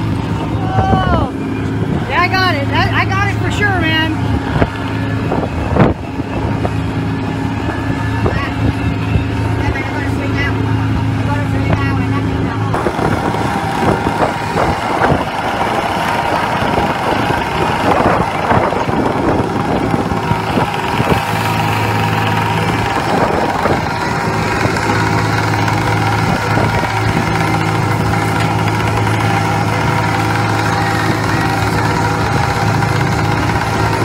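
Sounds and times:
boat engine humming: 0:00.0 - 0:34.0
knocks and clatter: 0:12.8 - 0:34.0.

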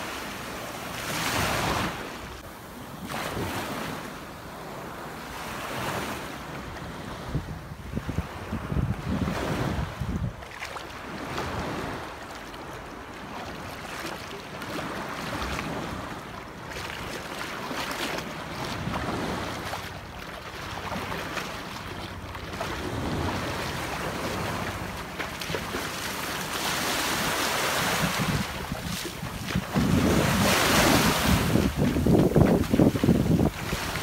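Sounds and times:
wind on microphone: 0:06.8 - 0:10.5, 0:26.6 - 0:34.0
small waves washing: 0:08.1 - 0:34.0.

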